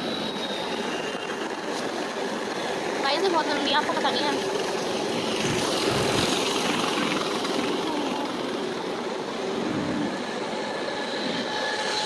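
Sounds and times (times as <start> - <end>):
passing traffic: 0.0 - 12.0
car road and wind noise: 4.4 - 11.7.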